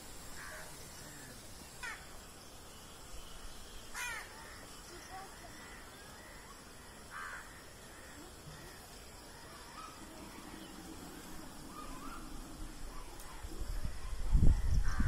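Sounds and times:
crows cawing: 1.8s - 2.0s, 3.9s - 4.6s, 5.6s - 8.8s.

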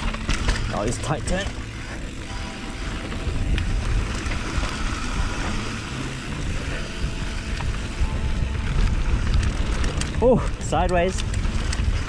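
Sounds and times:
bike tyres rolling on dirt: 0.0s - 12.0s
wind rushing over camera: 3.1s - 12.0s.

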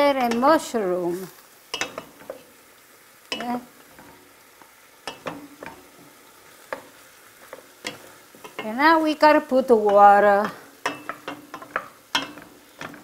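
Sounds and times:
faint frying sizzle: 0.0s - 13.0s
spoon knocking against pan: 5.0s - 5.9s, 9.8s - 13.0s
wooden spoon scraping a pan: 5.1s - 13.0s.

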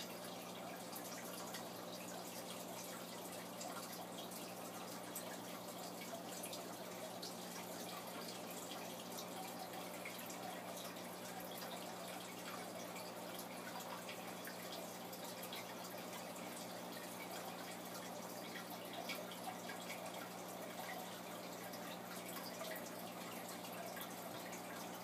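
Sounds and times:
water trickling and dripping: 0.0s - 25.0s.

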